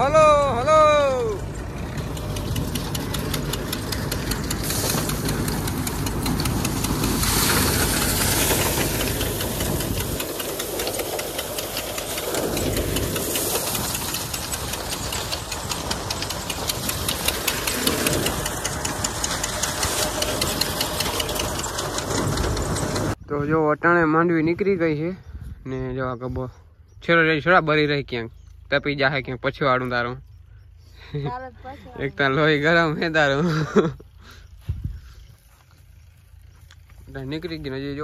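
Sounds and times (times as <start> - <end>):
thresher clattering: 1.4 - 23.2.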